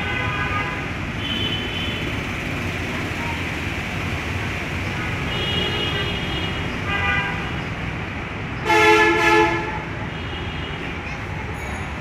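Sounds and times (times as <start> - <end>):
road traffic: 0.0 - 12.0
vehicle horns honking: 8.6 - 10.8.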